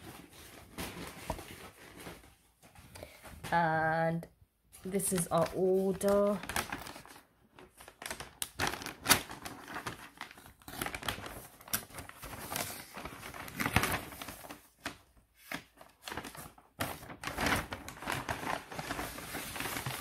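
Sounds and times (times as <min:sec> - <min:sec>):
paper bag crinkling: 0:04.8 - 0:20.0.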